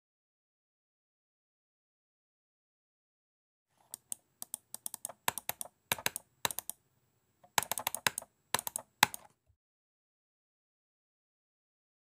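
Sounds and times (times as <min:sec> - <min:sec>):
computer keyboard typing: 0:03.8 - 0:06.8, 0:07.4 - 0:09.3.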